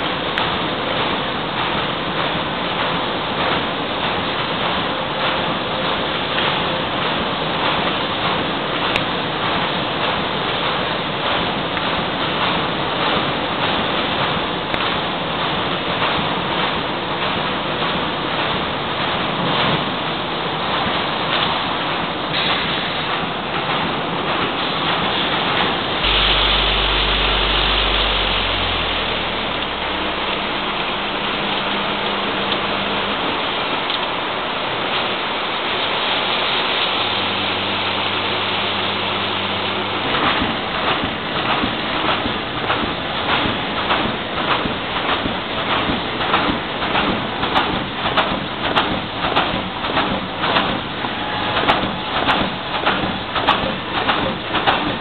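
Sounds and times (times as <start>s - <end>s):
machinery clattering: 0.0s - 55.0s
low hum: 26.0s - 35.8s.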